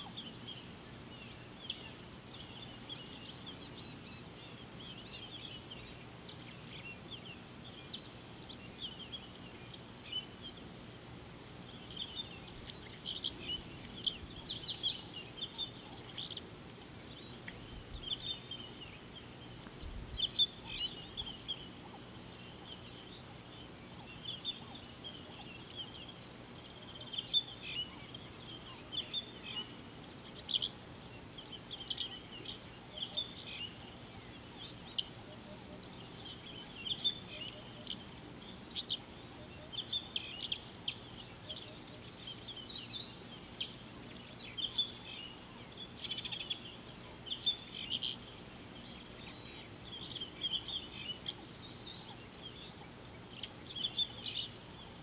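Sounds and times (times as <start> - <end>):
birds chirping and twittering: 0.0 - 55.0
faint steady hiss: 0.0 - 55.0.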